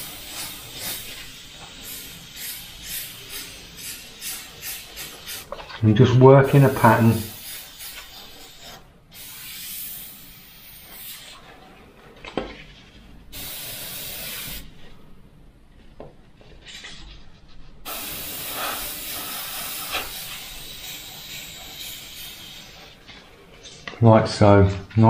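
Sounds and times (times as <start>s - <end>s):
airbrush spraying: 0.0s - 5.7s, 6.4s - 11.4s, 13.3s - 14.7s, 17.9s - 23.1s.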